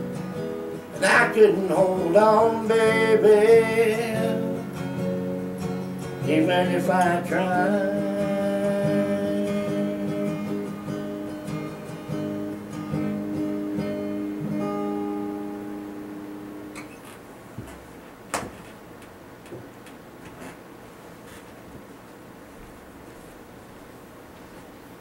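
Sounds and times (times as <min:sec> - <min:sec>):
acoustic guitar strumming: 0:00.0 - 0:17.4
light clicks and knocks: 0:16.8 - 0:20.6.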